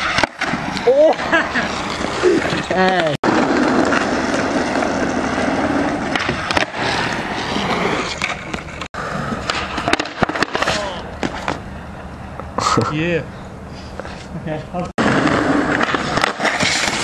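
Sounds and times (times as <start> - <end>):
skateboard wheels rolling on asphalt: 0.0 - 12.6, 15.0 - 17.0
skateboard clacking on pavement: 8.1 - 11.6, 15.0 - 17.0.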